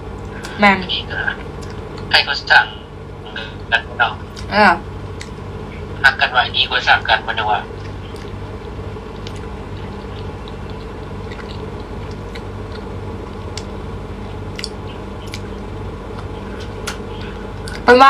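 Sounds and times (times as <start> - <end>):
low hum: 0.0 - 18.0
person chewing: 1.4 - 2.1, 5.1 - 5.5, 7.7 - 17.8
wet mouth clicks: 7.8 - 13.7, 14.5 - 17.8.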